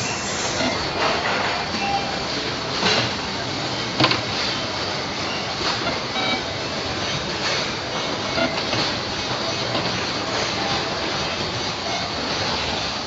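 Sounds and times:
machine mechanical clatter: 0:00.0 - 0:13.0.

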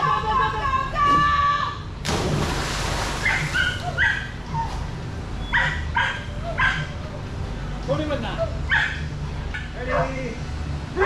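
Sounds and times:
dog splashing into water: 0:02.0 - 0:03.8
dog yipping and barking: 0:03.2 - 0:04.8, 0:05.5 - 0:06.9, 0:08.7 - 0:09.0.

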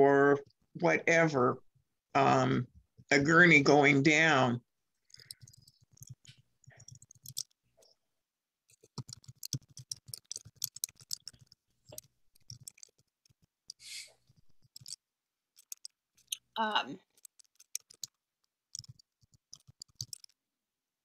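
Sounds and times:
keyboard typing: 0:05.1 - 0:07.6, 0:08.7 - 0:15.0, 0:15.6 - 0:20.4.

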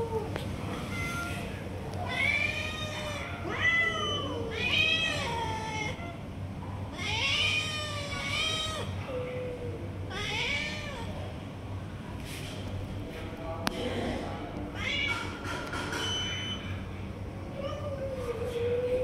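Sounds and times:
cats meowing: 0:00.0 - 0:06.2, 0:06.9 - 0:11.3, 0:14.7 - 0:15.4.

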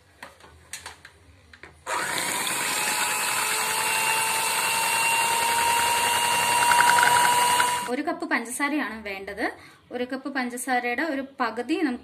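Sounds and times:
electric hand mixer whining: 0:01.9 - 0:07.9.

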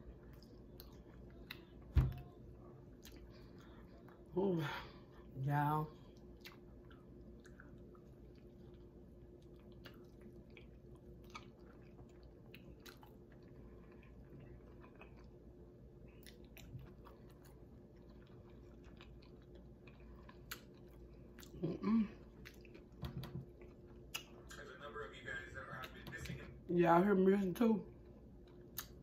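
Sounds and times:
chewing food: 0:00.0 - 0:04.3, 0:06.0 - 0:24.7, 0:27.8 - 0:29.0
wet mouth clicks and smacks: 0:24.0 - 0:24.4, 0:28.5 - 0:29.0.

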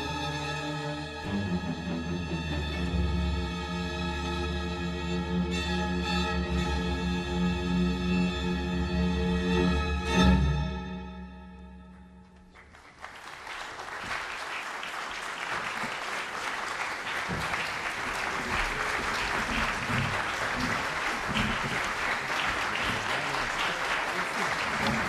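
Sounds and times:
audience applause: 0:12.5 - 0:25.0.

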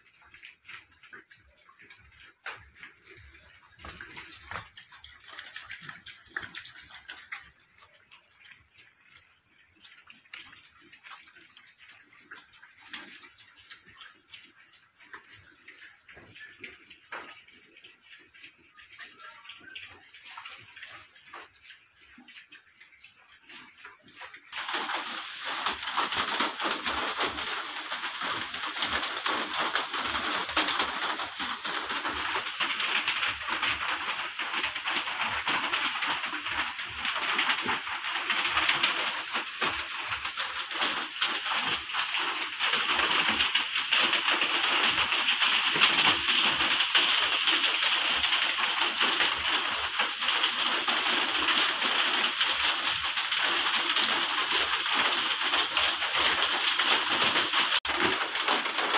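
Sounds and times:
scattered clicks and rustles: 0:00.0 - 0:58.9
rush of water: 0:24.5 - 0:58.9.

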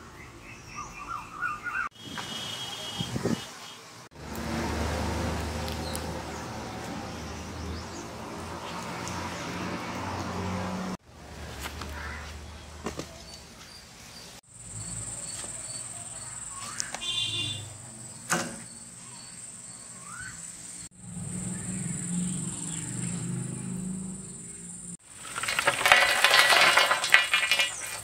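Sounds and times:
bird chirps: 0:00.2 - 0:01.9, 0:13.2 - 0:23.3
cricket trill: 0:14.5 - 0:25.0.

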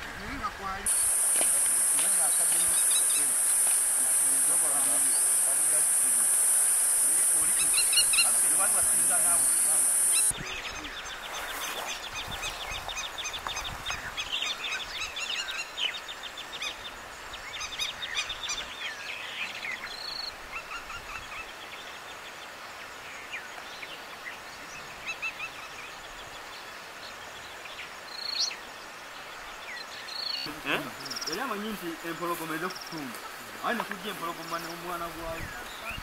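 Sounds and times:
steady background hiss: 0:00.0 - 0:36.0
small birds chirping: 0:00.2 - 0:22.4, 0:24.6 - 0:36.0
loud rising bird call: 0:00.9 - 0:10.3.

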